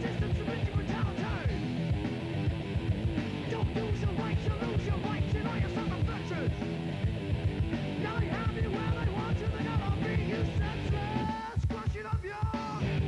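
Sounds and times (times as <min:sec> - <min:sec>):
person singing: 0:00.0 - 0:01.8, 0:03.4 - 0:06.8, 0:08.0 - 0:13.0
guitars: 0:00.0 - 0:11.6, 0:12.5 - 0:13.0
fast rock drum beat: 0:00.0 - 0:13.0.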